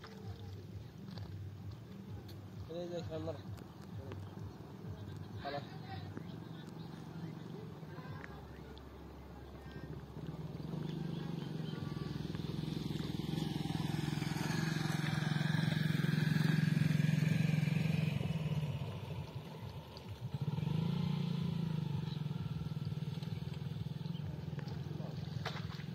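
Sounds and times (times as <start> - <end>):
small engine humming: 9.4 - 25.9.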